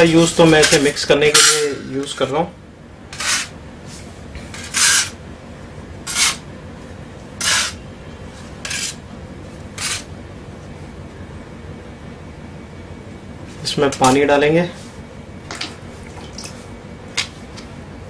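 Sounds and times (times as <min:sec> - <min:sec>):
putty knife scraping floor: 0:03.1 - 0:03.5, 0:04.5 - 0:05.2, 0:06.1 - 0:06.4, 0:07.4 - 0:07.8, 0:08.6 - 0:09.0, 0:09.8 - 0:10.1.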